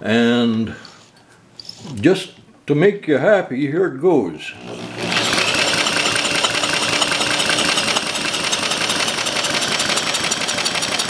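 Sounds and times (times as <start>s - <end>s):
electric drill droning: 4.5s - 11.0s
model engine clattering: 5.0s - 11.0s.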